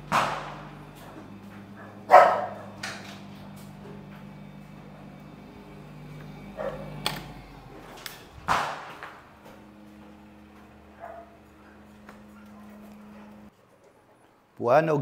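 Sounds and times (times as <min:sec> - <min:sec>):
loud sudden bangs: 0:08.4 - 0:09.2.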